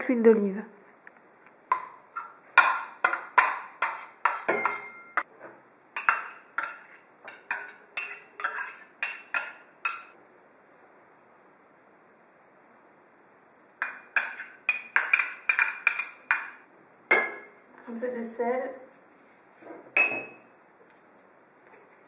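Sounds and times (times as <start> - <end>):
metal spoon clinking on dishes: 1.7 - 5.3, 6.0 - 10.2, 13.8 - 17.6, 20.0 - 20.5.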